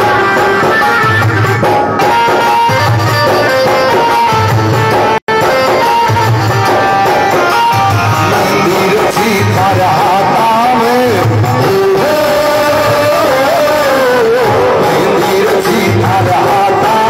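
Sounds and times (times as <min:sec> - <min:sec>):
music with drum beat: 0:00.0 - 0:17.0
man singing into a microphone: 0:07.7 - 0:17.0.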